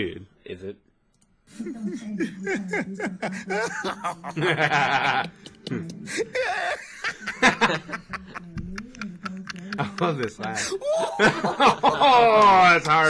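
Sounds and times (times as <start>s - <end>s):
people laughing: 1.7s - 13.0s
man laughing: 2.2s - 8.5s, 9.2s - 13.0s
music: 2.7s - 10.5s.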